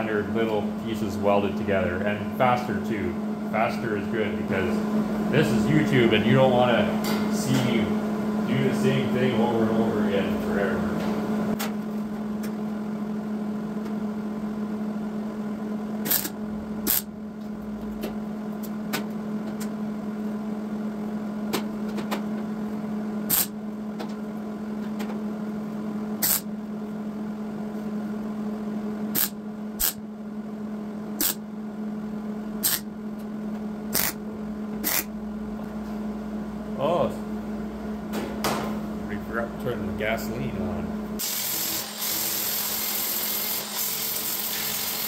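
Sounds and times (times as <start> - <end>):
electrical hum: 0.0 - 45.0
welder sizzling bursts: 41.2 - 45.0.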